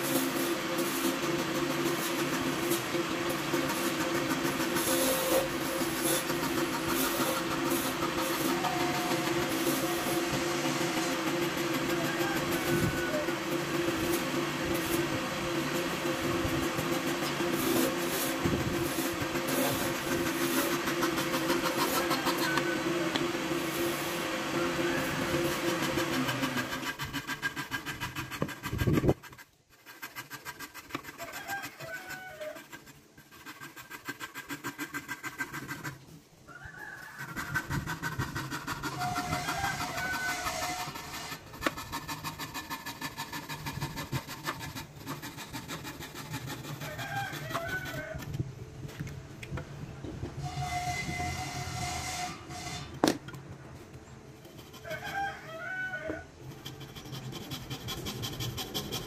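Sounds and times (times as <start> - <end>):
power tool motor humming: 0.0 - 29.2.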